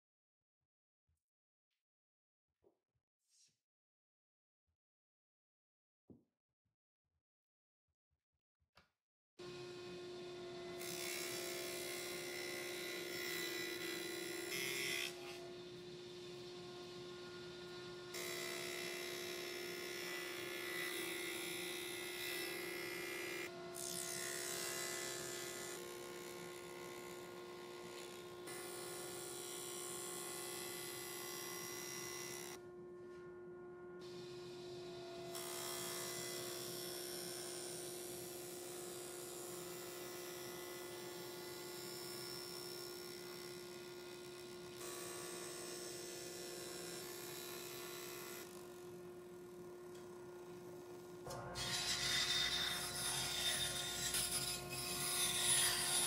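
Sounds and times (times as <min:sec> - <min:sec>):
table saw motor hum: 0:09.4 - 0:56.0.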